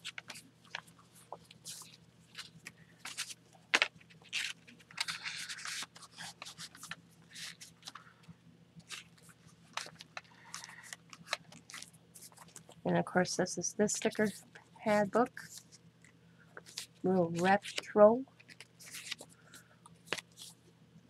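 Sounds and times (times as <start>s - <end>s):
paper pages rustling: 0.0s - 8.1s, 8.8s - 12.8s, 16.6s - 20.6s.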